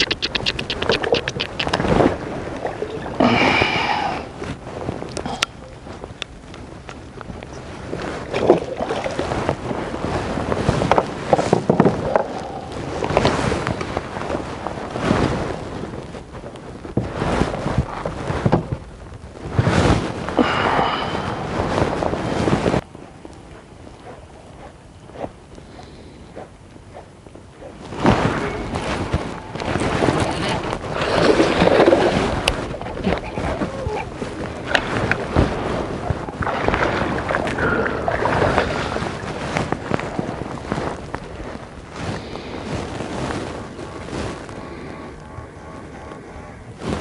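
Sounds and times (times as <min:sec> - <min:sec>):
water splashing: 0:00.0 - 0:06.0, 0:07.9 - 0:10.4, 0:28.0 - 0:41.0
clothing rustling on microphone: 0:00.0 - 0:47.0
wind on microphone: 0:00.0 - 0:47.0.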